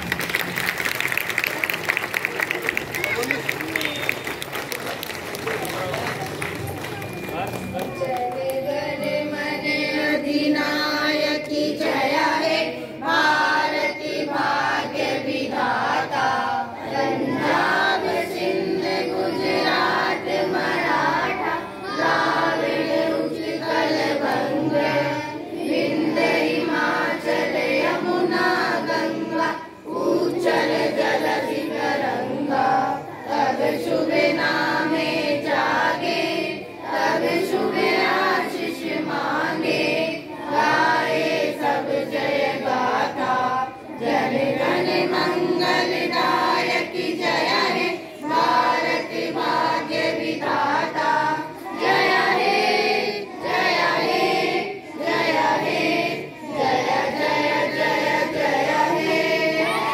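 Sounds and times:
children singing in chorus: 8.3s - 59.9s.

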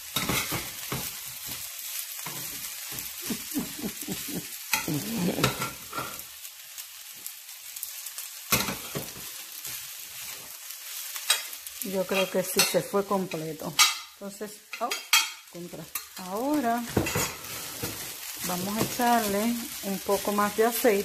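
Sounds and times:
rice sizzling in oil: 0.0s - 21.0s
spatula stirring and scraping: 0.1s - 6.3s, 8.5s - 14.1s, 14.7s - 21.0s.

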